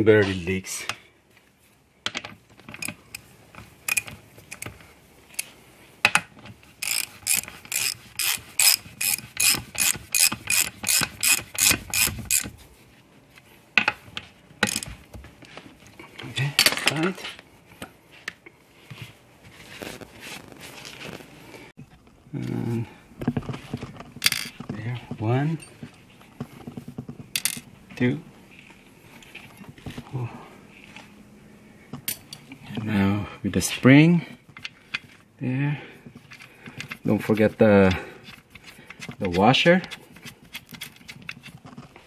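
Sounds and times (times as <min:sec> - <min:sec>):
hand ratchet clicking: 0:06.8 - 0:12.5.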